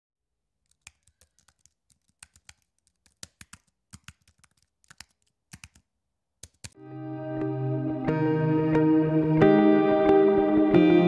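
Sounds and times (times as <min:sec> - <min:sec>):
computer keyboard typing: 0:00.7 - 0:06.8.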